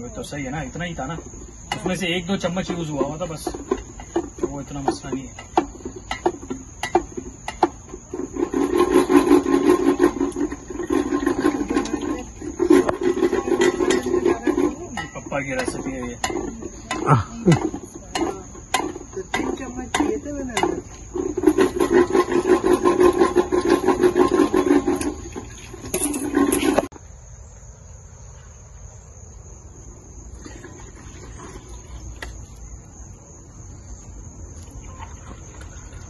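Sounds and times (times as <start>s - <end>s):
crickets chirping: 0.0s - 36.0s
wooden churner rattling in steel pot: 1.0s - 26.9s.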